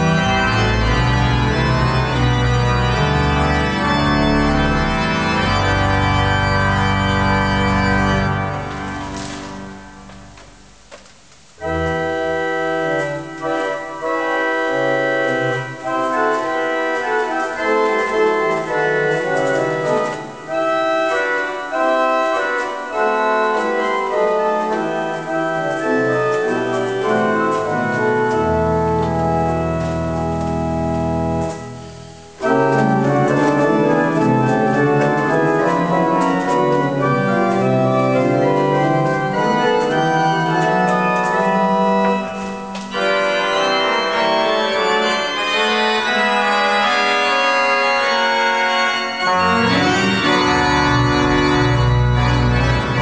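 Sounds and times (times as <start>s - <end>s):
pipe organ full chords: 0.0s - 53.0s
low organ pedal note: 11.6s - 53.0s.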